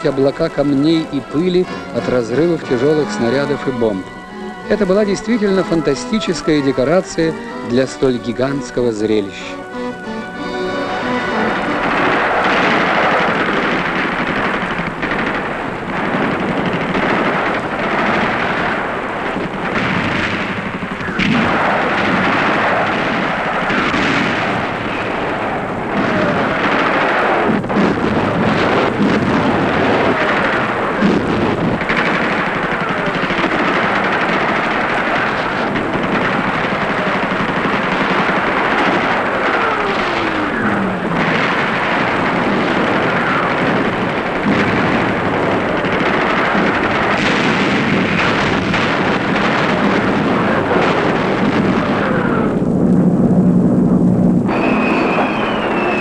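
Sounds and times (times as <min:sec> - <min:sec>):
rifle and machine-gun fire: 0:00.0 - 0:52.7, 0:54.4 - 0:56.0
shell explosions: 0:00.0 - 0:56.0
falling whistles: 0:03.0 - 0:07.8, 0:54.5 - 0:56.0.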